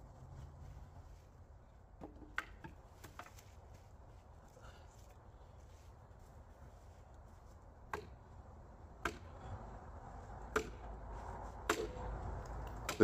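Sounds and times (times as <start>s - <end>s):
axe knocking against a log: 2.0s - 3.4s, 7.9s - 8.2s, 9.0s - 9.3s, 10.5s - 10.9s, 11.6s - 12.0s.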